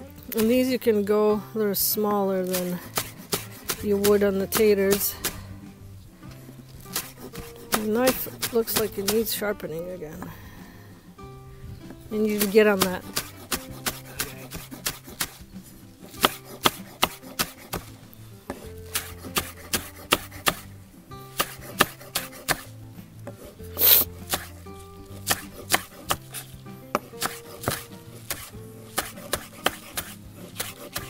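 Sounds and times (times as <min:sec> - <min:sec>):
soft background music: 0:00.0 - 0:31.0
knife chopping on cutting board: 0:02.5 - 0:05.4, 0:06.9 - 0:09.3, 0:12.4 - 0:15.4, 0:16.1 - 0:20.7, 0:21.3 - 0:22.7, 0:23.3 - 0:31.0.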